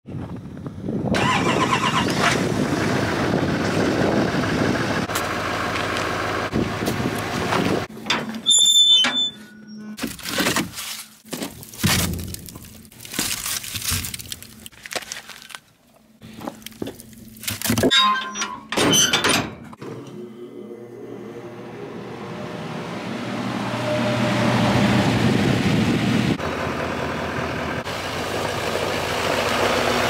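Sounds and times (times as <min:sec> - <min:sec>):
diesel pickup engine running: 0:00.7 - 0:08.1, 0:20.8 - 0:30.0
short high squeal: 0:08.4 - 0:10.0.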